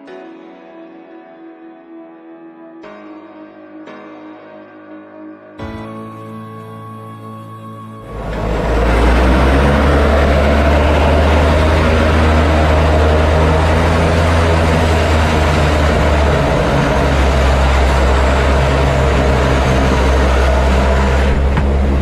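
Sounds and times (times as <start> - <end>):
deep hum: 8.0 - 22.0
turboprop engines droning: 8.0 - 22.0.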